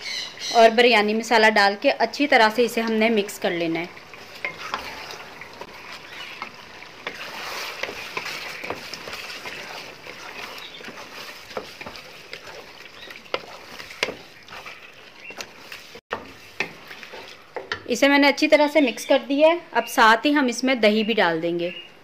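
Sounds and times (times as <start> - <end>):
chicken sizzling in oil: 1.2 - 17.7
spatula knocking and scraping pot: 4.2 - 18.0.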